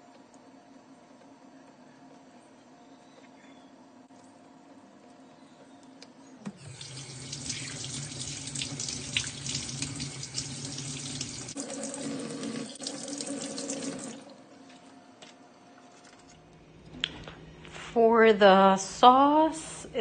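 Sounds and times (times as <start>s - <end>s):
tap water splashing in sink: 6.6s - 14.2s.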